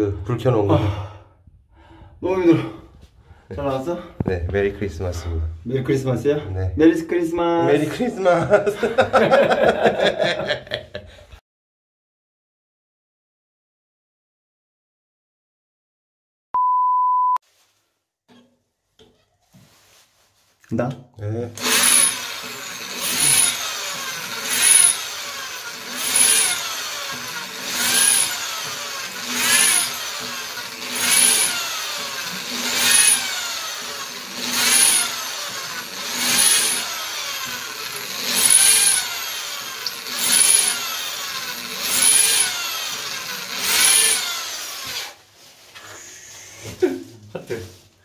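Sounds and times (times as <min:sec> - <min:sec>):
electric drill boring into tile: 0:21.6 - 0:45.2.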